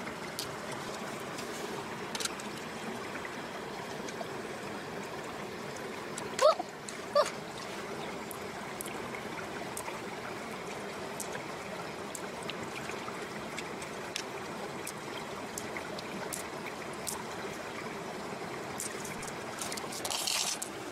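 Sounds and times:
running water: 0:00.0 - 0:20.9
small wet clicks: 0:00.3 - 0:01.5, 0:02.1 - 0:02.7, 0:06.1 - 0:09.0, 0:09.7 - 0:10.0, 0:11.2 - 0:11.5, 0:12.1 - 0:17.3, 0:18.7 - 0:20.8.

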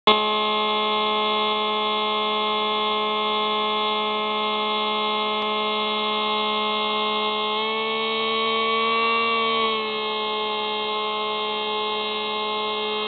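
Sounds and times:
electric motor and propeller buzzing: 0:00.1 - 0:13.0.

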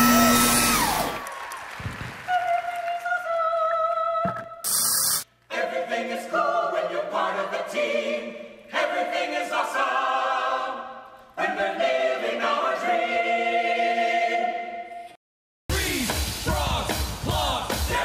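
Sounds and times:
choir singing held chords: 0:05.5 - 0:15.1, 0:15.7 - 0:18.0.

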